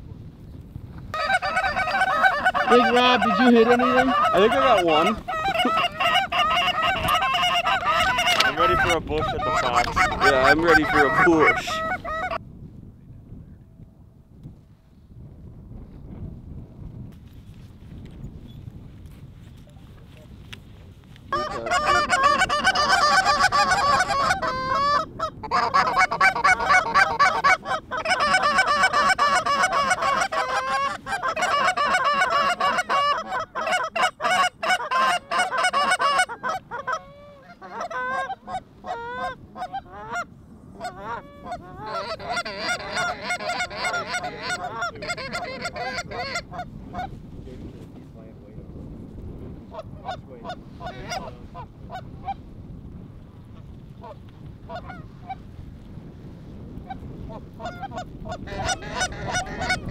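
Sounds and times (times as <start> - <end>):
geese honking: 1.1 - 12.4, 21.3 - 47.1, 50.0 - 52.4, 57.6 - 59.9.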